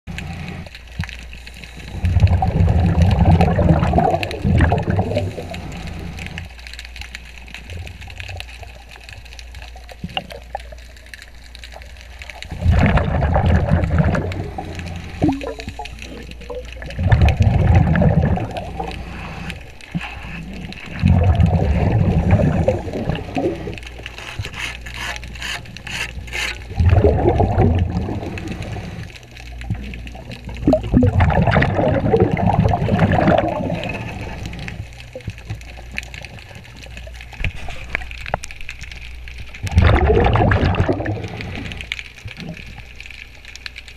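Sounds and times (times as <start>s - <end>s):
bubbles gurgling underwater: 1.7s - 6.6s, 7.4s - 24.1s, 26.2s - 38.4s, 39.1s - 43.4s
breathing gear hiss: 24.1s - 26.7s.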